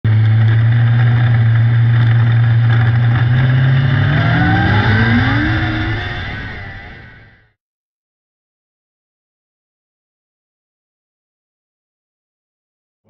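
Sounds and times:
car engine revving: 0:00.1 - 0:07.6.

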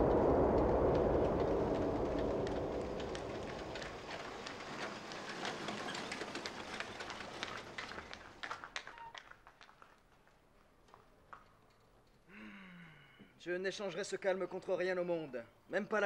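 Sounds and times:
low rumble: 0:00.0 - 0:04.8
dense clattering and crackling: 0:00.2 - 0:08.8.

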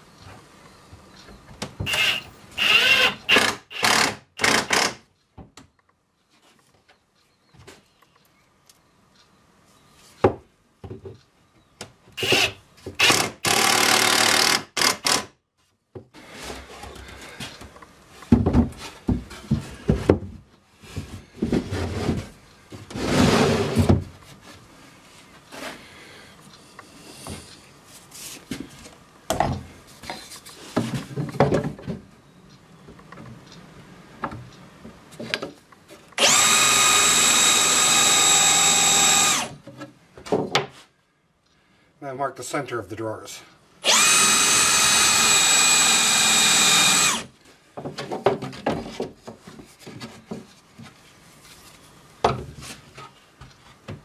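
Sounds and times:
cordless drill whining: 0:01.9 - 0:05.0, 0:12.2 - 0:15.3, 0:36.2 - 0:39.6, 0:43.8 - 0:47.3
wooden drawer scraping: 0:21.5 - 0:24.1.

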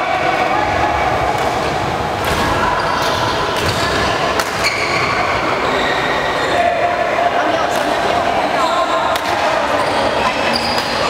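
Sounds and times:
racket hitting shuttlecock: 0:03.6 - 0:04.6.

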